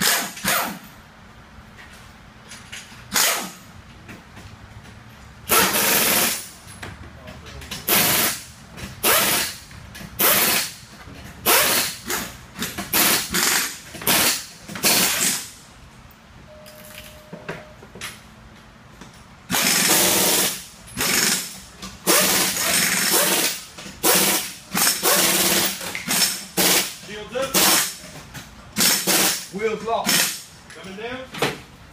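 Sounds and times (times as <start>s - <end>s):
pneumatic impact wrench bursts: 0.0s - 1.0s, 3.0s - 3.7s, 5.4s - 6.6s, 7.8s - 15.6s, 19.5s - 28.1s, 28.7s - 30.6s.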